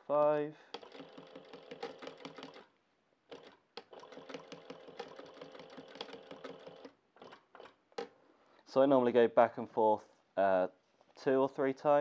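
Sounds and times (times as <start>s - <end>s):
sewing machine stitching: 0.7s - 2.7s, 3.3s - 8.1s.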